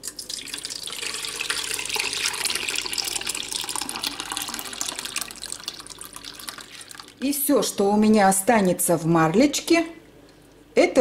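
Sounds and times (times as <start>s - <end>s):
liquid pouring and splashing: 0.0s - 7.2s.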